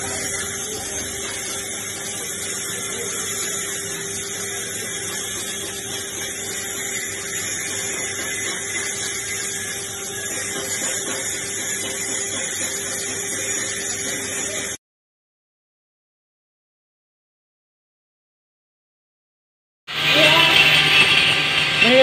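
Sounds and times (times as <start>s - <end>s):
arc welding buzz and hiss: 0.0s - 14.8s, 19.9s - 22.0s.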